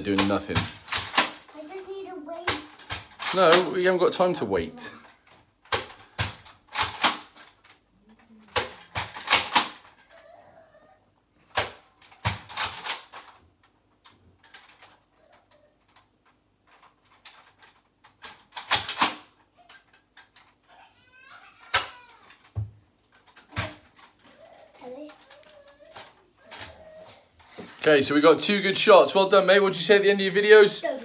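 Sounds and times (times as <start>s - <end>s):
foam-dart blaster clacks and snaps: 0.1s - 1.5s, 5.6s - 7.8s, 8.5s - 10.0s, 16.7s - 20.6s.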